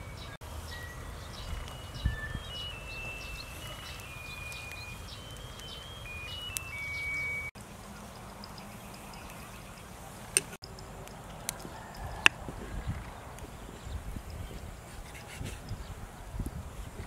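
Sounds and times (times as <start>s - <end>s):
high whistled notes: 0.0s - 7.6s.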